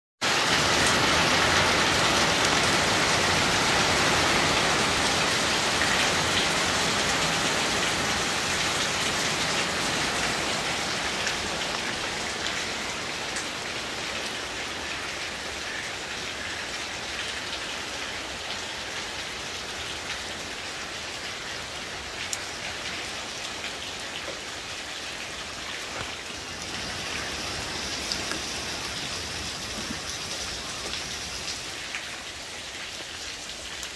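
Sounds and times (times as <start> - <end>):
rain falling on patio and lake: 0.2 - 33.9
water drip ticks: 27.0 - 31.6.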